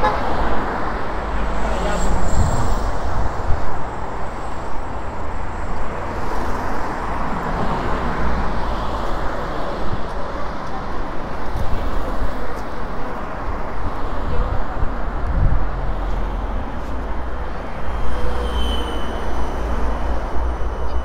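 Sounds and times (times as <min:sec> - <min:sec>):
street traffic roar: 0:00.0 - 0:21.0.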